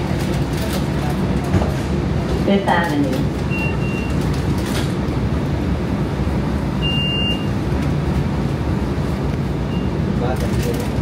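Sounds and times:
tram car rumble: 0.0 - 11.0
short high beeps: 3.5 - 4.2, 6.8 - 7.5.

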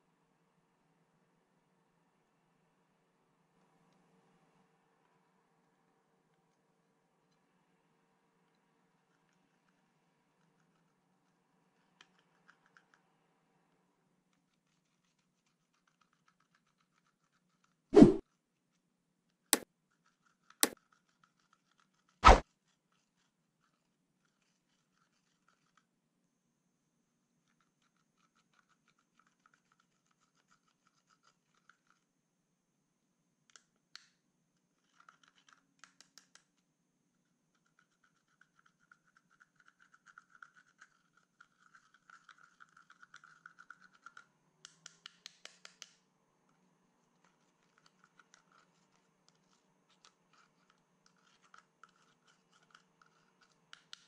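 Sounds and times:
applicator scratching powder: 14.5 - 18.2, 19.9 - 23.3, 47.2 - 54.0.

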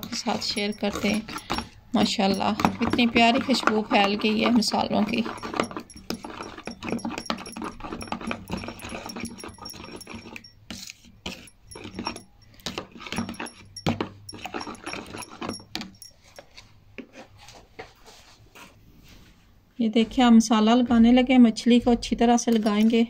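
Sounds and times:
spoon scraping plastic bowl: 0.0 - 17.6, 22.5 - 23.0.

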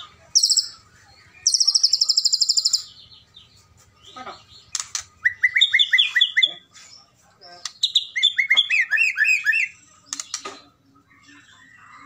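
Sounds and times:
sharp clicks: 4.7 - 5.2, 10.1 - 10.5.

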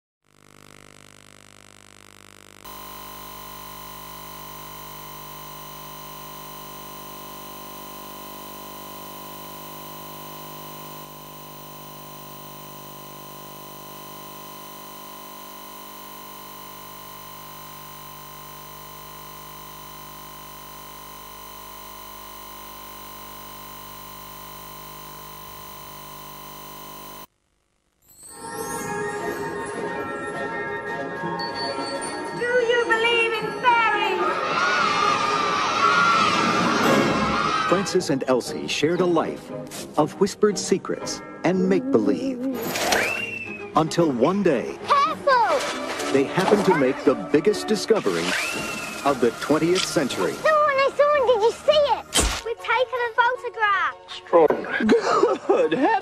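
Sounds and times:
tape playback hum and hiss: 0.4 - 27.8
whistle-like tone: 42.9 - 43.6.

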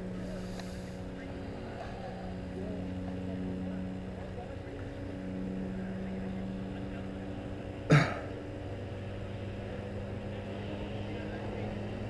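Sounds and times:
low engine hum: 0.0 - 12.0.

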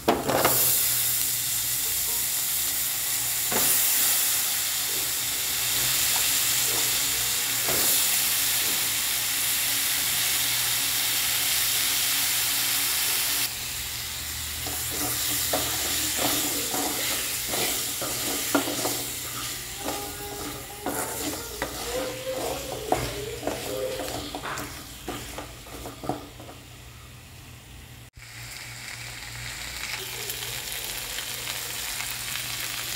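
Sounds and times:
vegetables sizzling in oil: 0.0 - 32.9
spatula scraping a metal pan: 14.6 - 26.6.

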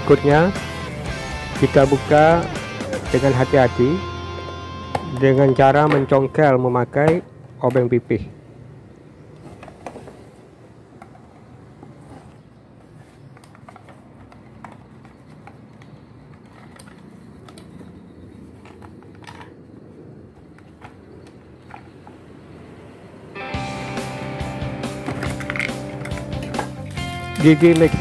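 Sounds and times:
plastic housing clicks and knocks: 18.6 - 19.6.

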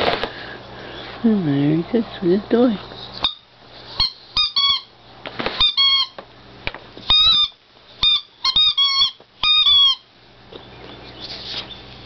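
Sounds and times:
squeaky dog toy: 3.2 - 4.9, 5.6 - 6.2, 7.1 - 10.1.

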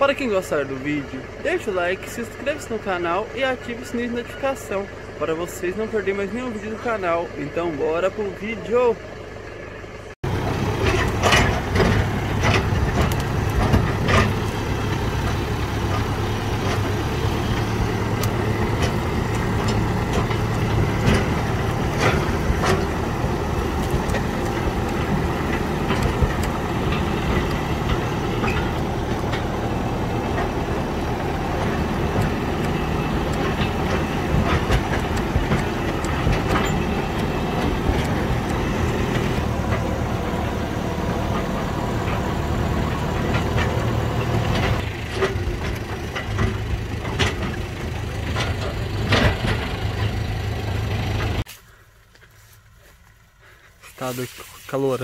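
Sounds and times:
tractor engine running: 0.0 - 55.0
clanks and rattles: 10.2 - 51.5.

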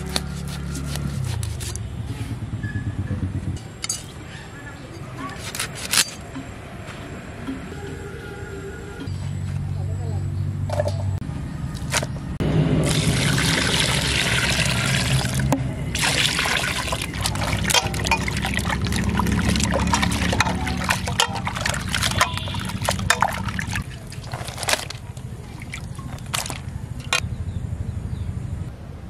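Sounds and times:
water pouring into steel bowl: 12.8 - 26.6
water splashing and sloshing: 12.8 - 27.2.

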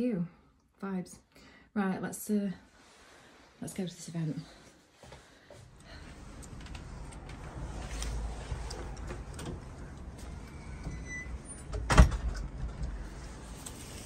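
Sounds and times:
street noise rumble: 5.7 - 14.0.

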